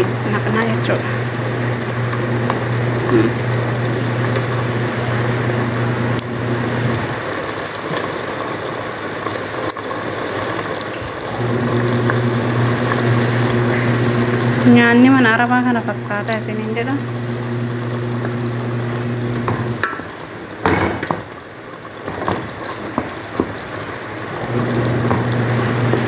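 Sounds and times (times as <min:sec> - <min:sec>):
low machine hum: 0:00.0 - 0:07.9, 0:11.1 - 0:21.4.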